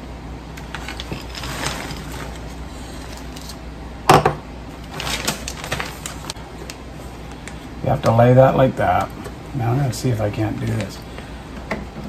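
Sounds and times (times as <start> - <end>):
chips pattering into plastic bag: 0.6 - 3.6, 4.9 - 6.4
plastic bag crinkling: 0.6 - 3.6, 4.8 - 6.4.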